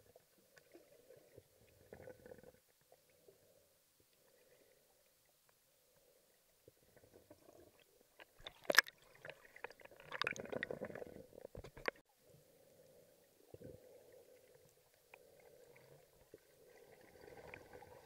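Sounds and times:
water sloshing and bubbling: 0.0s - 18.0s
sharp clicks and knocks: 11.5s - 12.0s.

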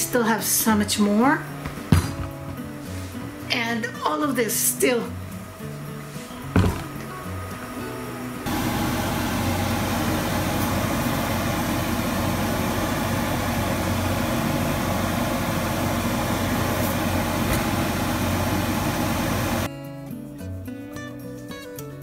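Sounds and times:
rushing fan-like noise: 4.8s - 19.7s
small motor hum: 5.1s - 19.7s.

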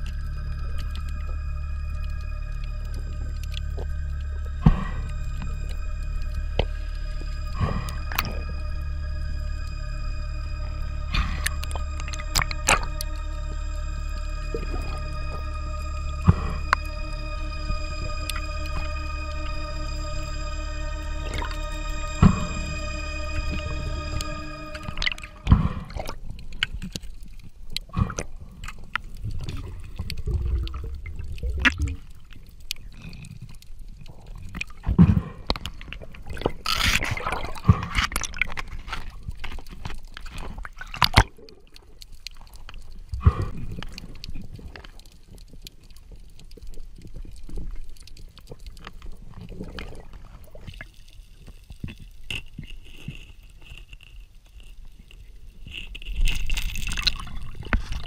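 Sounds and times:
rush of noise: 0.0s - 26.2s
underwater gurgling: 0.0s - 58.0s
faint high tone: 0.1s - 26.2s
underwater clicks and knocks: 55.6s - 58.0s.

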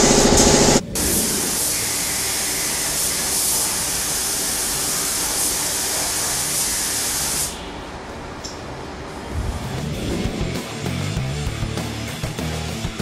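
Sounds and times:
paint spray gun hissing: 0.0s - 7.6s.

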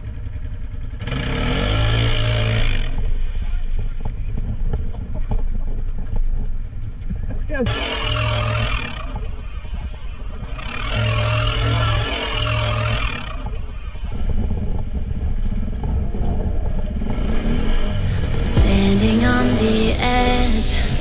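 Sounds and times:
atv engine revving: 0.0s - 21.0s.

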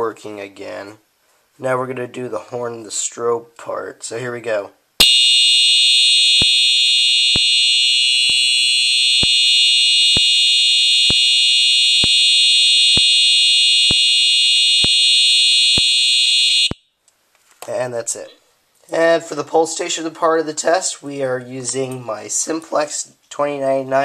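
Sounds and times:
strobe ticking: 5.0s - 16.0s
fire alarm horn: 5.0s - 16.9s.

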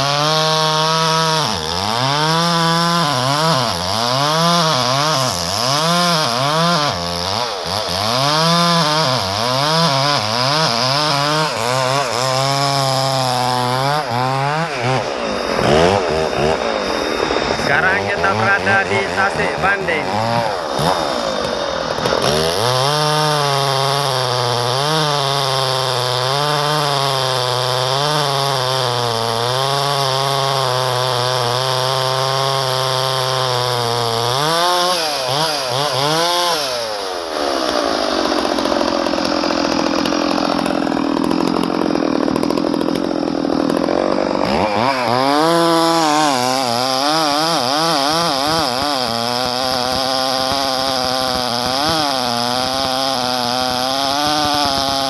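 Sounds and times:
chainsaw engine running: 0.0s - 55.0s.

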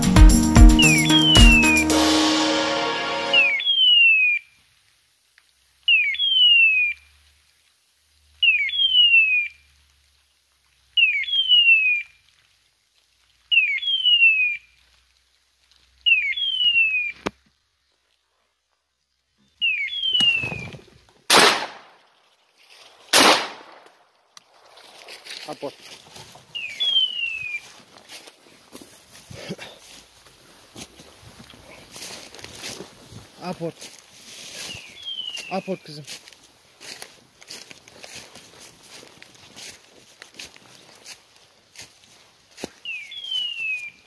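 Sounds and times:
shotgun shots: 21.3s - 22.0s, 23.1s - 23.9s.

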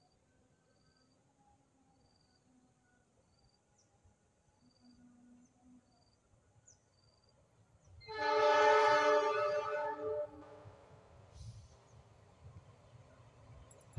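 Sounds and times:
insect chirps: 0.0s - 8.1s
train horn blast: 8.0s - 11.5s.

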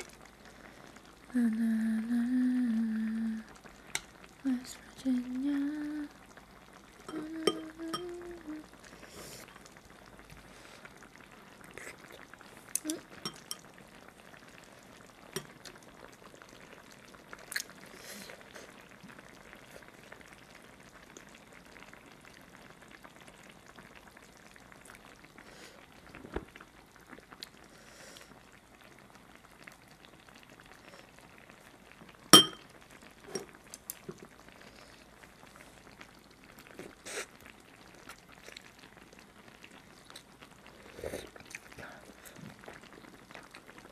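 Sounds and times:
person humming: 1.3s - 3.5s, 4.4s - 6.2s, 7.1s - 8.8s, 12.8s - 13.2s
soft wet eating sounds: 6.7s - 16.2s, 16.8s - 20.0s, 33.2s - 43.9s.

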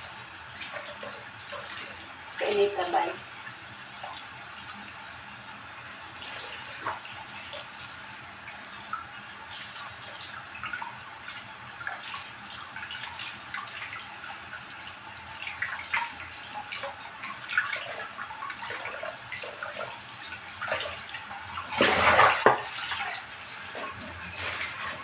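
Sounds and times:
water splashing in plastic bowl: 15.4s - 25.0s.

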